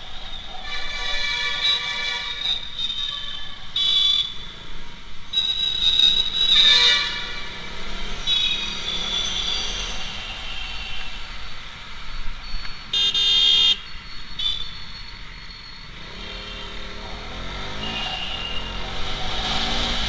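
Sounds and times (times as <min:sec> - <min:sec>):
vehicle horns honking: 0:00.6 - 0:04.4, 0:05.3 - 0:09.8, 0:12.9 - 0:13.8, 0:14.4 - 0:14.7, 0:17.7 - 0:19.0
motorcycle engine: 0:15.9 - 0:20.0.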